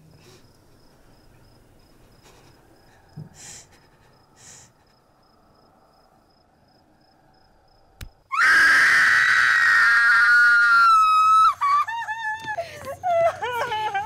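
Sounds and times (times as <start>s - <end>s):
woman screaming: 8.3s - 14.0s.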